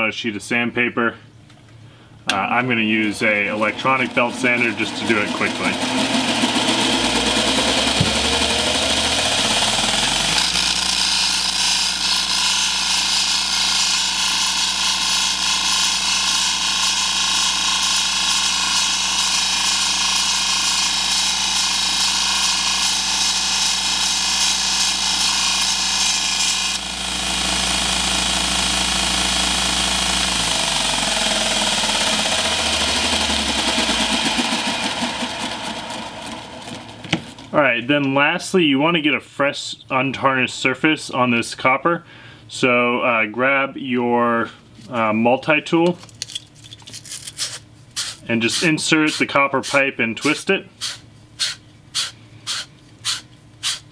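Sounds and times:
belt sander running: 2.3 - 37.6, 48.0 - 53.8.

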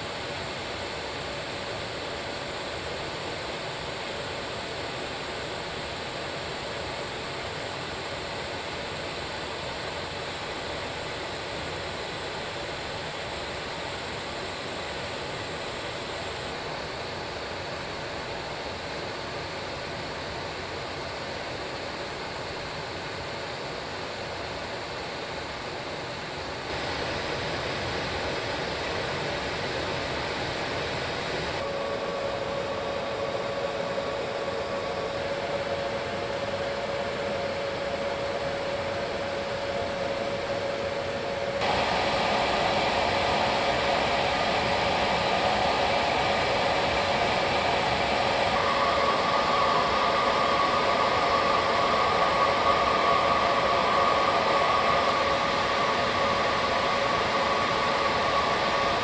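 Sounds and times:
steady whine: 0.0 - 59.0
jet engine roar: 26.6 - 59.0
rushing air: 26.7 - 59.0.

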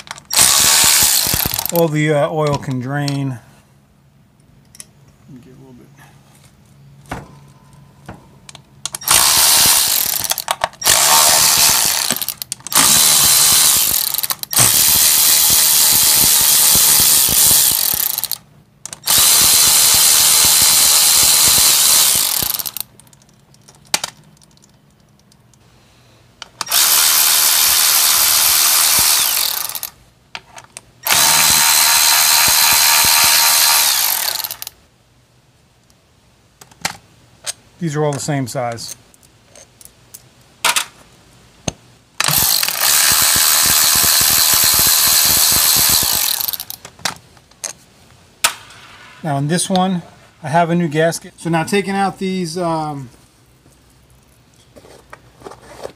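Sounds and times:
power ratchet spinning bolts: 0.0 - 1.8, 8.9 - 23.0, 26.6 - 30.0, 31.0 - 34.7, 42.2 - 46.8.

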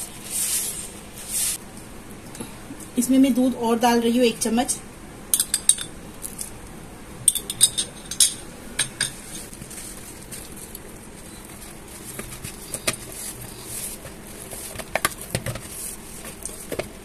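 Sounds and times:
hands kneading dough: 9.2 - 17.0.

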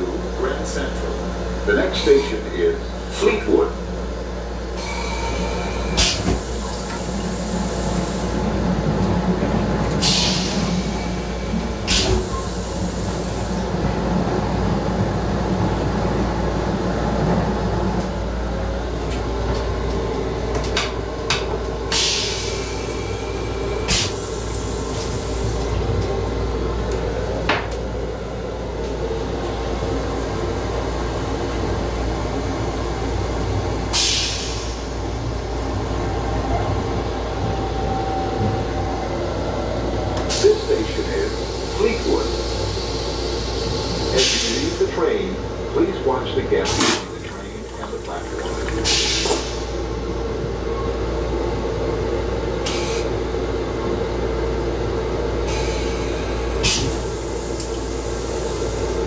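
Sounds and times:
electric railcar rumble: 0.0 - 59.0.

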